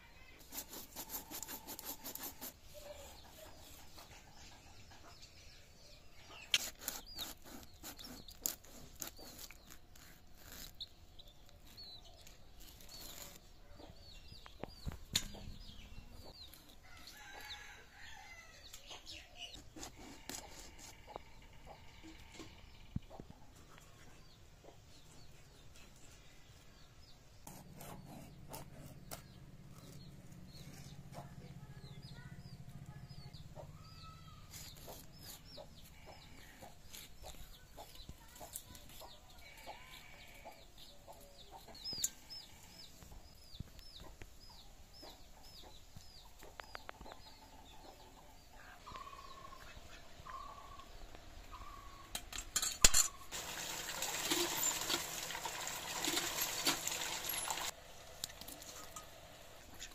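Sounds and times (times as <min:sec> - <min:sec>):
chick peeping: 0:40.5 - 0:52.1
hen clucking: 0:45.0 - 0:52.1.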